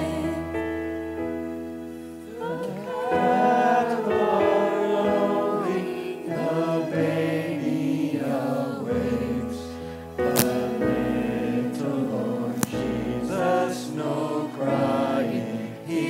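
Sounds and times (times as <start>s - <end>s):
choir singing slow song: 0.0s - 16.0s
musical accompaniment: 9.6s - 16.0s.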